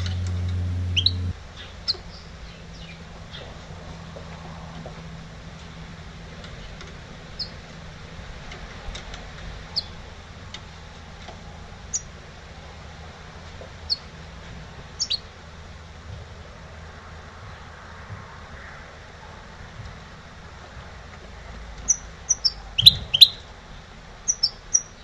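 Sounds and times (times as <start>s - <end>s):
bird chirping: 0.0s - 3.6s, 6.5s - 7.6s, 9.7s - 10.0s, 11.9s - 12.1s, 13.9s - 14.1s, 15.0s - 15.3s, 21.8s - 23.5s, 24.2s - 25.0s
steady low hum: 0.0s - 25.0s.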